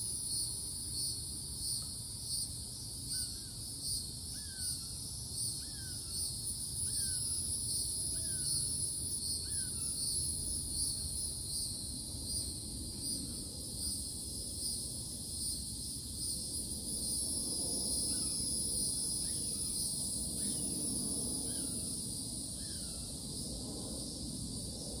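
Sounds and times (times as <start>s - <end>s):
insects droning: 0.0s - 25.0s.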